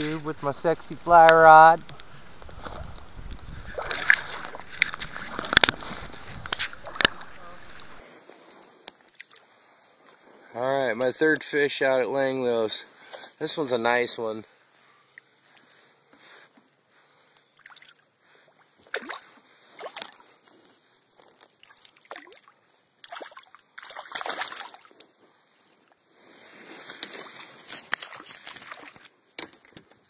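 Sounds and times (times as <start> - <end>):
fish splashing at water surface: 21.6 - 24.9.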